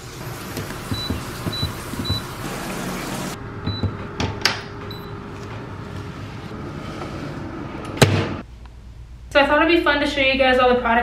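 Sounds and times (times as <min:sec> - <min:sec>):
shower water running: 0:00.0 - 0:03.4
towel warmer beeping: 0:00.6 - 0:05.4.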